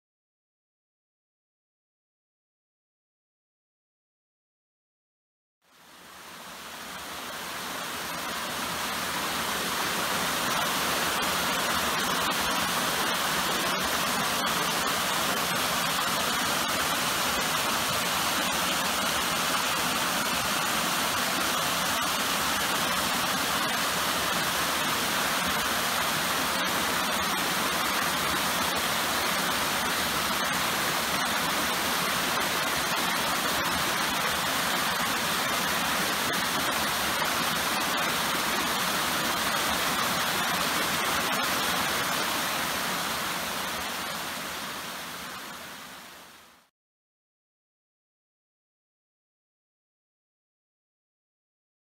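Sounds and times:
waterfall rushing over rocks: 0:05.7 - 0:46.7.

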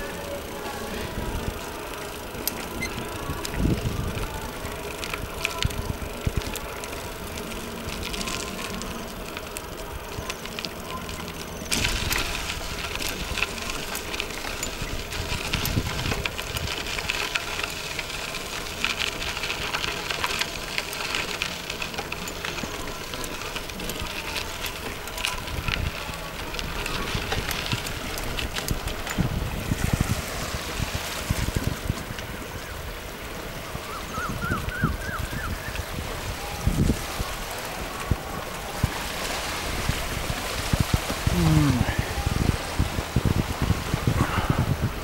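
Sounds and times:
bike rattling clicks: 0:00.0 - 0:41.8
tyres crunching on gravel: 0:00.0 - 0:45.0
steady rushing noise: 0:35.8 - 0:45.0.

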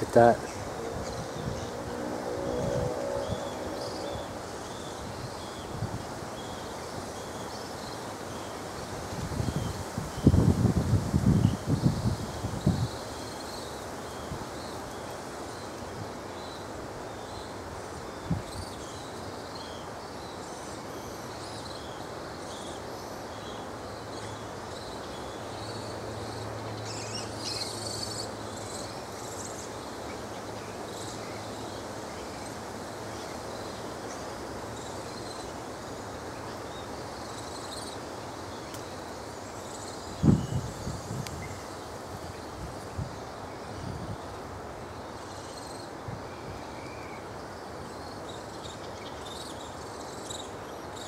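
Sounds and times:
steady background hiss: 0:00.0 - 0:51.0.

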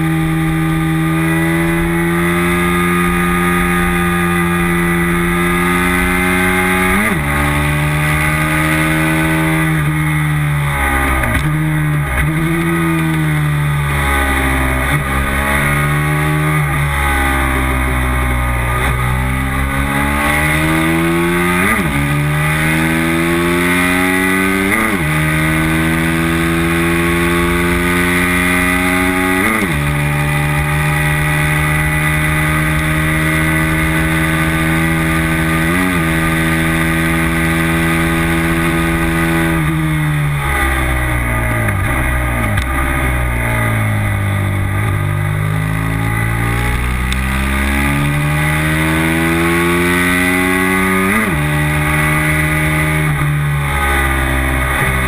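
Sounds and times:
racing motorcycle engine revving: 0:00.0 - 0:55.0
wind and road rush: 0:00.0 - 0:55.0.

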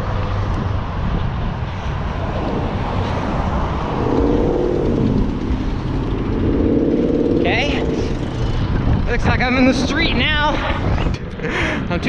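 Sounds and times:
wind rumble: 0:00.0 - 0:12.0
humming motor: 0:00.5 - 0:09.2.

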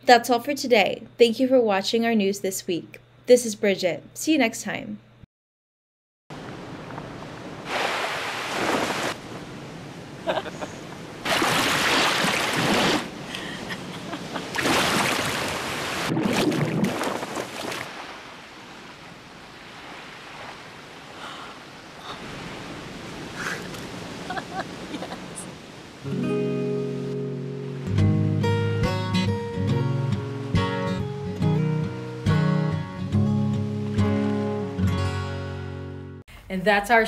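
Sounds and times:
ocean waves washing in: 0:06.3 - 0:28.0.

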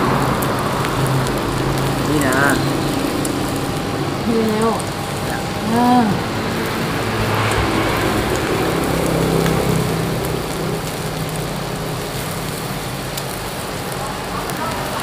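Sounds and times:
meat sizzling on grill pan: 0:00.0 - 0:15.0.

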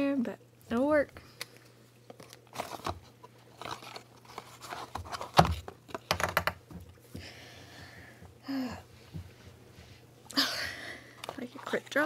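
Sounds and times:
rustling and crackling of packaging: 0:01.2 - 0:07.0, 0:11.1 - 0:12.0.

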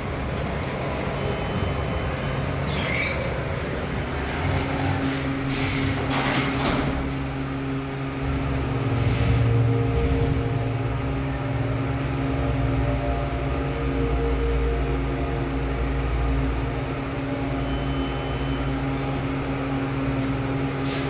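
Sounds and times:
elevator doors closing: 0:00.0 - 0:21.0.

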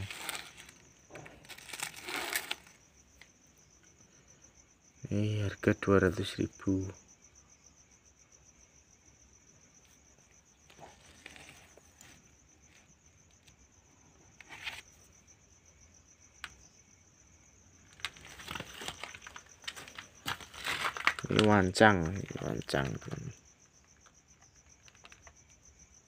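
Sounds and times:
crickets trilling: 0:00.0 - 0:26.0
handling taps and rustles: 0:17.9 - 0:23.3.

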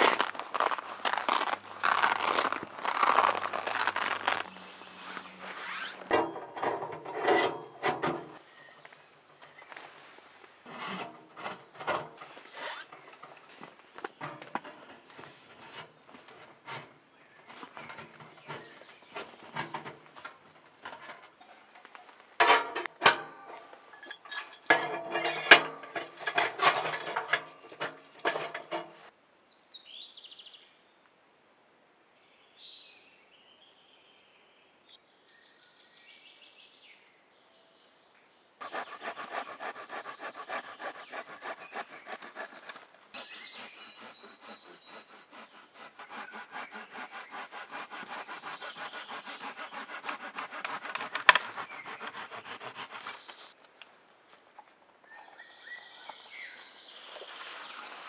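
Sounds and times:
hand saw cutting wood: 0:00.0 - 0:08.4, 0:10.6 - 0:13.3, 0:22.4 - 0:29.1, 0:38.6 - 0:53.6
metallic clanks and knocks: 0:22.4 - 0:29.1.

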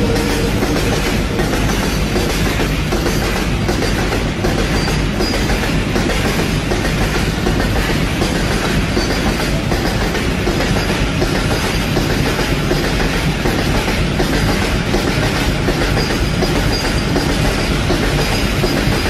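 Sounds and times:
train wagon wheels rumbling on rails: 0:00.0 - 0:19.0.

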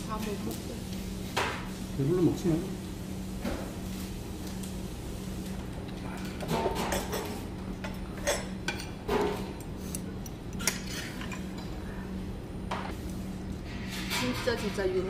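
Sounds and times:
steady low hum: 0:00.0 - 0:15.0
utensils clinking against bowls: 0:06.0 - 0:11.8, 0:13.7 - 0:15.0.

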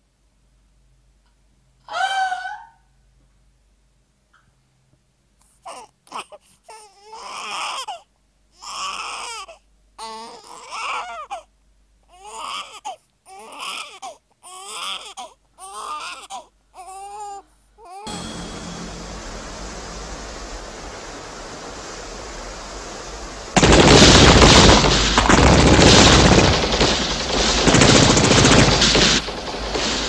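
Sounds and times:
steady rushing hiss: 0:18.1 - 0:30.0.

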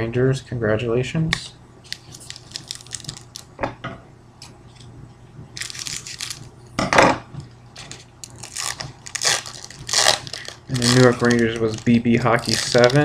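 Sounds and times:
wrapper ripping: 0:01.9 - 0:03.5, 0:05.6 - 0:06.5, 0:07.8 - 0:13.0
wrapper rustling and crinkling: 0:01.9 - 0:03.6, 0:05.6 - 0:06.6, 0:07.8 - 0:13.0.

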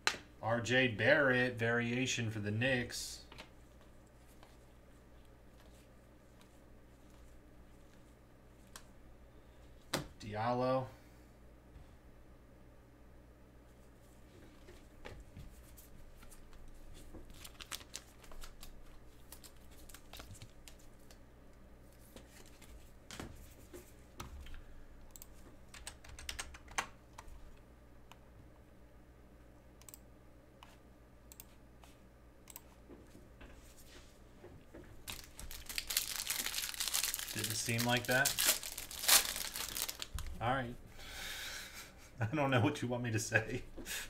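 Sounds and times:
plastic wrapper crinkling: 0:17.3 - 0:20.8, 0:35.0 - 0:40.4.

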